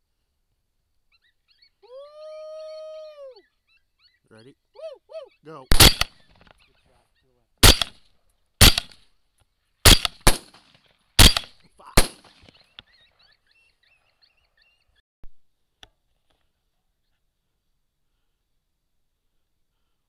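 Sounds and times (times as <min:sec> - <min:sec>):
rifle shots with echo: 0:05.7 - 0:06.2, 0:07.6 - 0:08.0, 0:08.6 - 0:09.0, 0:09.8 - 0:12.5.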